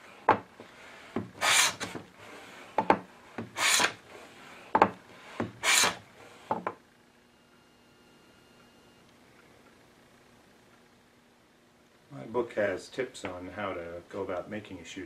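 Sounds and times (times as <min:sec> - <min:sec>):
hand plane cutting strokes: 0:01.1 - 0:02.4, 0:03.4 - 0:04.4, 0:05.2 - 0:06.0.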